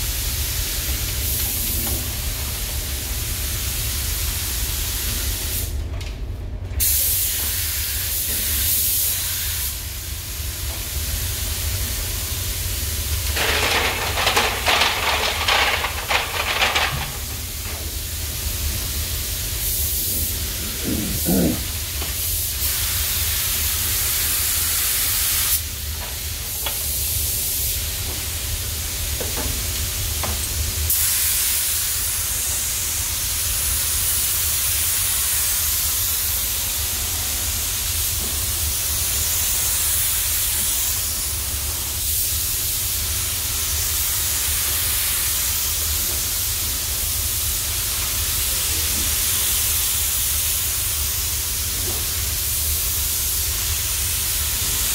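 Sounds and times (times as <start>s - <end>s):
ventilation hum: 0.0s - 54.9s
spray gun hissing: 6.8s - 25.7s, 30.9s - 54.9s.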